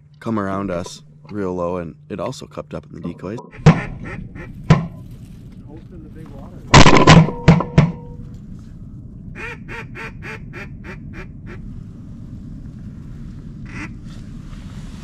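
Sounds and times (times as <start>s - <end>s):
duck quacking: 3.5s - 5.0s, 13.7s - 14.0s
sharp loud knocks: 3.6s - 4.0s, 4.7s - 5.0s, 6.8s - 8.0s.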